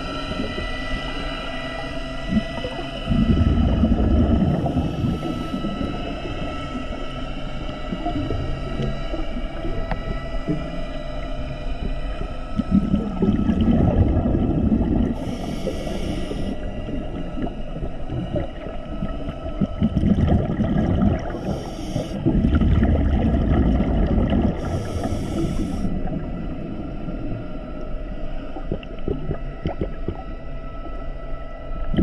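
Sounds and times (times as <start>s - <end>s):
exhaled bubbles underwater: 0.0s - 31.1s
regulator breath hiss: 15.2s - 16.8s, 21.3s - 22.2s, 24.6s - 26.0s.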